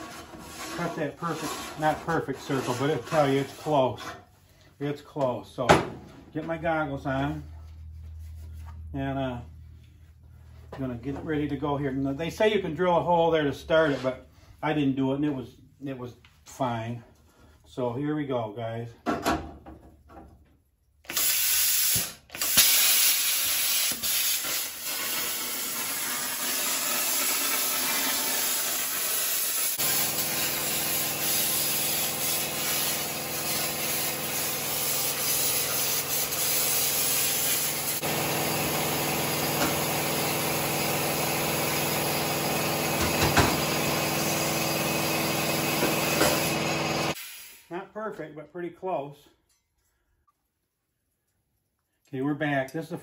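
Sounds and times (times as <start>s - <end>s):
plasma cutter hissing: 21.1s - 42.7s, 43.8s - 47.7s.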